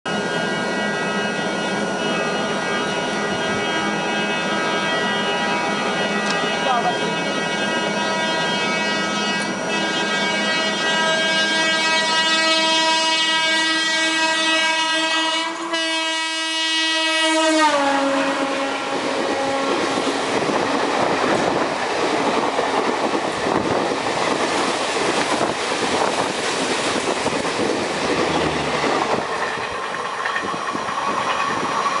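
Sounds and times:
train coaches clickety-clack: 0.1s - 32.0s
locomotive horn blast: 3.2s - 20.2s, 28.2s - 29.0s.

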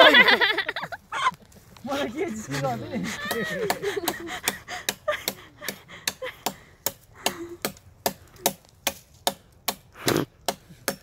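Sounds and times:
machete chopping branch: 3.2s - 11.0s.

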